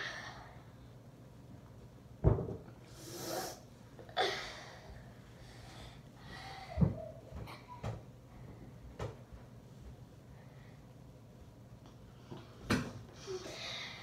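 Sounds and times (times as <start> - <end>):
person breathing: 4.2 - 6.9, 13.2 - 14.0.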